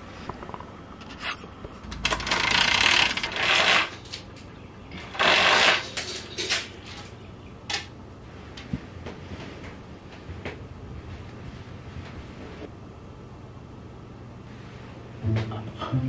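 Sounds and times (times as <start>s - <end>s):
bedding rustling: 8.2s - 12.7s.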